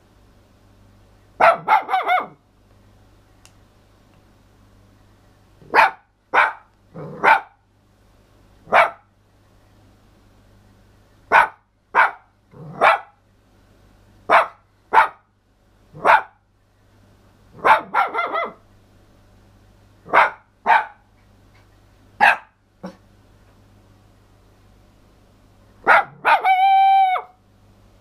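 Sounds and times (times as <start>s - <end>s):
small dog barking: 1.4s - 2.4s, 5.6s - 7.6s, 8.7s - 9.1s, 11.3s - 13.2s, 14.3s - 15.3s, 16.0s - 16.4s, 17.6s - 18.6s, 20.0s - 21.1s, 22.2s - 23.0s, 25.8s - 27.4s.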